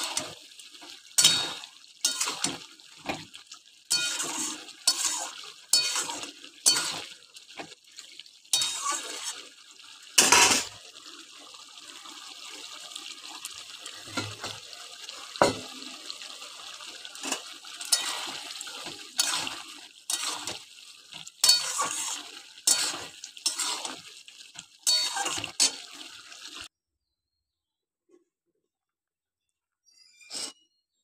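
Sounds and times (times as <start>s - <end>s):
spatula scraping a metal wok: 1.2s - 2.6s, 3.9s - 7.2s, 8.5s - 9.5s, 10.2s - 10.8s, 17.2s - 20.6s, 21.4s - 24.0s, 24.8s - 25.9s, 30.0s - 30.6s.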